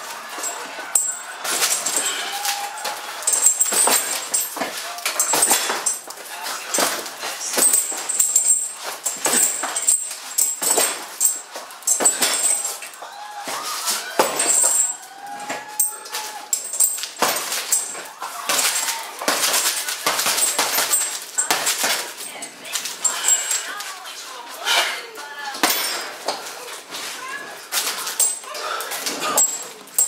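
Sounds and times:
gloves punching heavy bags: 0:00.0 - 0:23.7.

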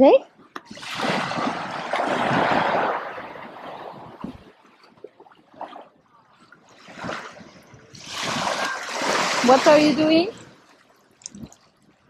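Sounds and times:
small wave washing on shore: 0:06.7 - 0:10.7.

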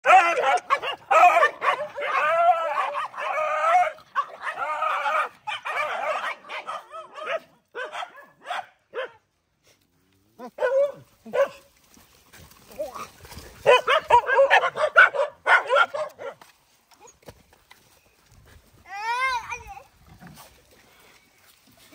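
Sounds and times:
dogs crying: 0:00.0 - 0:07.9
dogs snarling and barking: 0:00.0 - 0:09.2, 0:10.2 - 0:11.7, 0:12.3 - 0:16.5.

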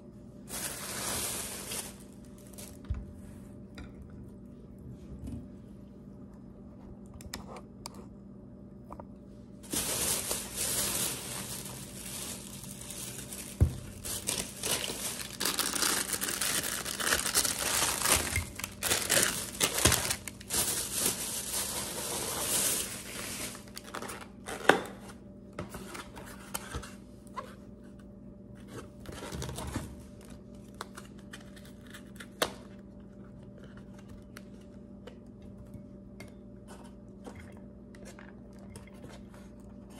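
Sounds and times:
packaging crinkling and tearing: 0:00.5 - 0:02.8, 0:09.6 - 0:25.0.

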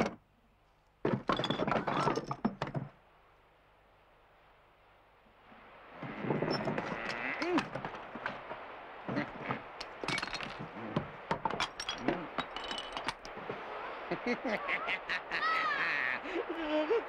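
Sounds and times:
knocks and crashes: 0:01.0 - 0:03.0, 0:09.7 - 0:13.5
rain hissing: 0:03.0 - 0:17.0
young monkeys crying: 0:14.2 - 0:17.0.

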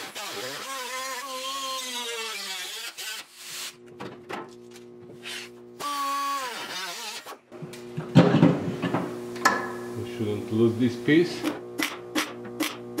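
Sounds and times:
cut-off tool cutting steel: 0:00.0 - 0:03.8.

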